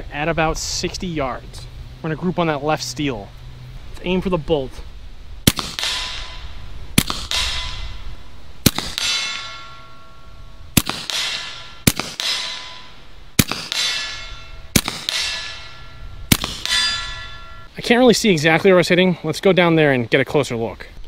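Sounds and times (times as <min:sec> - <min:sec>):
air pistol shots: 0:05.5 - 0:06.4, 0:07.0 - 0:08.0, 0:08.6 - 0:09.7, 0:10.8 - 0:12.8, 0:13.4 - 0:15.7, 0:16.3 - 0:17.2
pellet clanging on steel target: 0:08.7 - 0:17.7.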